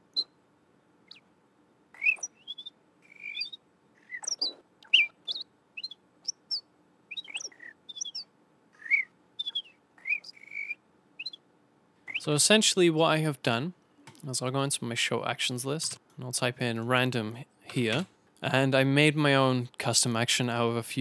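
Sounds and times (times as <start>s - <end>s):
artificial whistled birdsong chirps: 0.0s - 0.4s, 1.1s - 1.3s, 2.0s - 11.4s, 12.0s - 12.3s.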